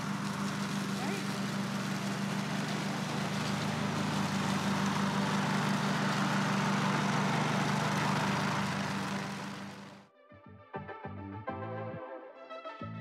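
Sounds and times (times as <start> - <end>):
lawn tractor engine hum: 0.0 - 10.0
leaf vacuum rushing hiss: 0.0 - 10.0.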